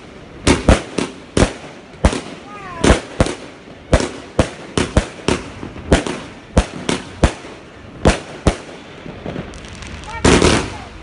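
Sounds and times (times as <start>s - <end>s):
firework bangs: 0.0s - 11.0s.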